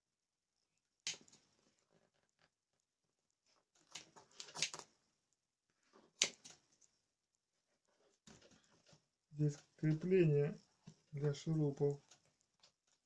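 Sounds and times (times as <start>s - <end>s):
rustles and scrapes of handling: 5.6s - 13.0s.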